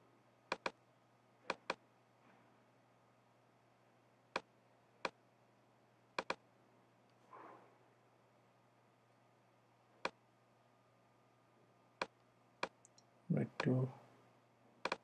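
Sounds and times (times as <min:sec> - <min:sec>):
faint steady hum: 0:00.0 - 0:15.0
computer mouse clicks: 0:00.5 - 0:00.8, 0:01.5 - 0:01.8, 0:06.2 - 0:06.4.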